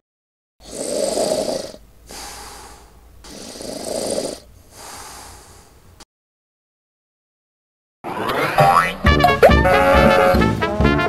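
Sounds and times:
cartoon snoring: 0:00.6 - 0:05.6.

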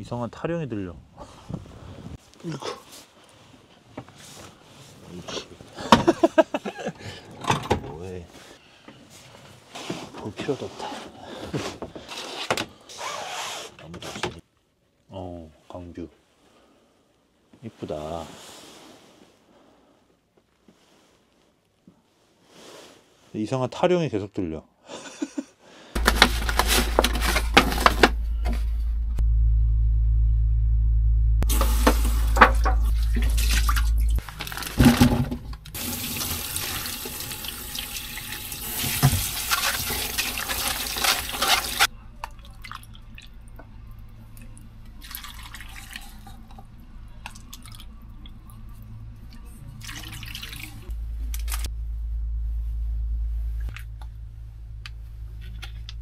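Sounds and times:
steady low hum: 0:26.0 - 0:34.4, 0:50.6 - 0:56.0
tap water running into sink: 0:31.5 - 0:41.9.

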